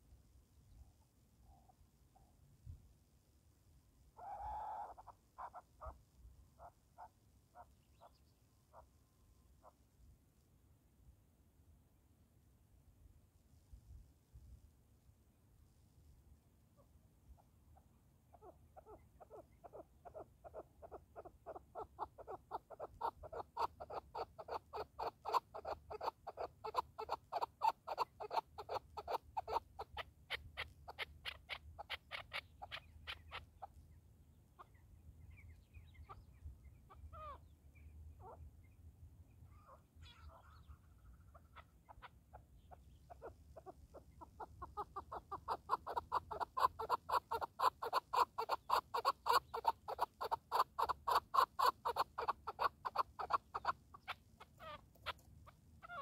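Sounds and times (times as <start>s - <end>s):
faint thin bird calls: 4.1s - 10.0s, 16.7s - 56.0s
partridge clucking calls: 18.4s - 33.8s, 39.6s - 56.0s.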